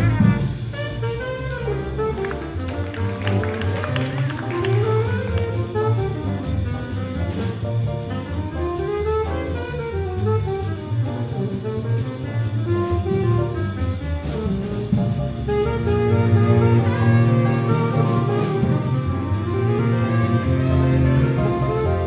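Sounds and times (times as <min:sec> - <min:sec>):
big band jazz ensemble: 0:00.0 - 0:22.0
walking double bass line: 0:00.0 - 0:22.0.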